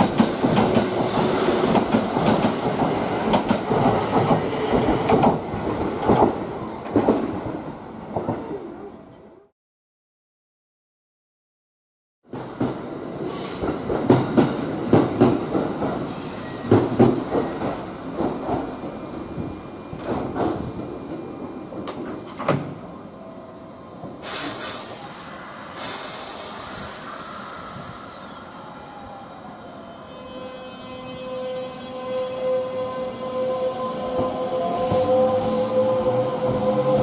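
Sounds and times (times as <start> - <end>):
train clanks and knocks: 0.0 - 8.6, 12.3 - 22.9
compressed-air hiss: 24.2 - 28.2, 34.7 - 35.8.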